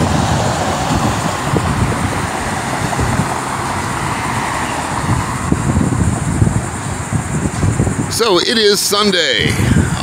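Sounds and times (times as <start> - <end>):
car driving past: 0.0 - 7.9
wind buffeting microphone: 0.0 - 10.0.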